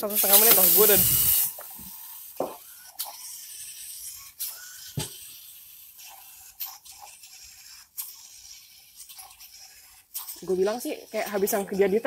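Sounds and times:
robot mechanism working: 0:00.0 - 0:02.3
steady hiss: 0:00.1 - 0:02.1.

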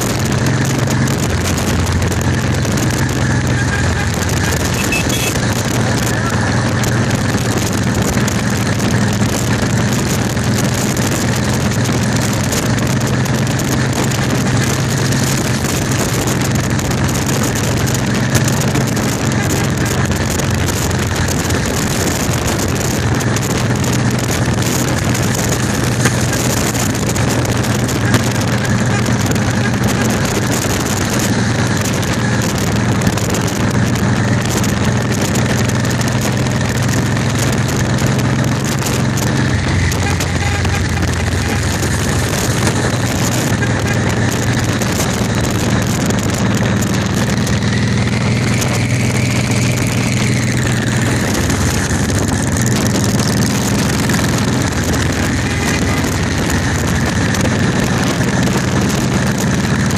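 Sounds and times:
engine drone: 0:00.0 - 0:59.9
motorcycles riding alongside: 0:00.0 - 0:59.9
road noise: 0:00.0 - 0:59.9.

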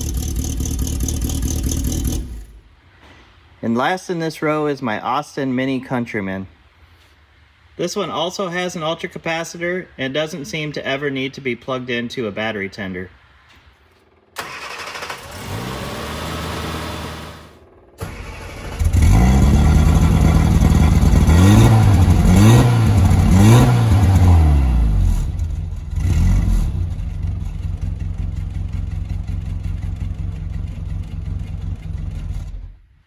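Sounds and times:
car engine starting and revving: 0:00.0 - 0:02.6, 0:14.4 - 0:32.8.

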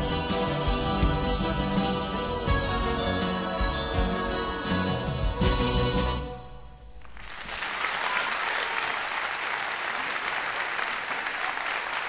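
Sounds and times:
audience applause: 0:07.0 - 0:12.0.

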